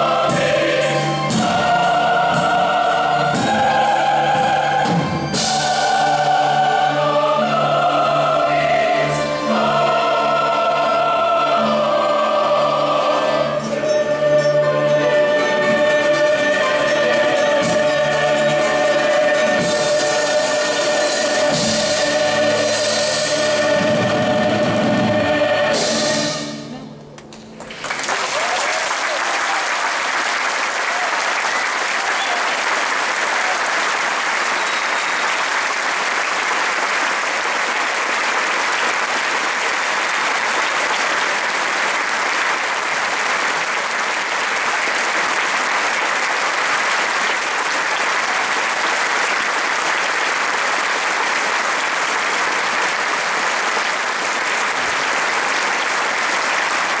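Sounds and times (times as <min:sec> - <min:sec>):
choir and orchestra final chord: 0:00.0 - 0:27.0
audience applause: 0:27.2 - 0:57.0.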